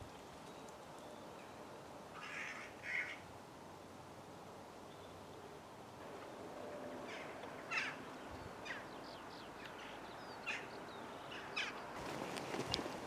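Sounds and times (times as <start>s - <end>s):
crows calling: 2.2s - 3.2s, 6.2s - 11.8s.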